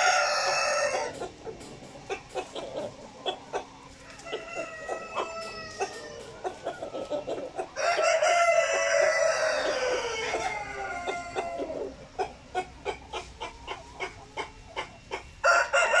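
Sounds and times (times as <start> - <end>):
rooster crowing: 0.0 - 1.2, 4.0 - 11.9, 15.4 - 16.0
rooster clucking: 0.0 - 16.0.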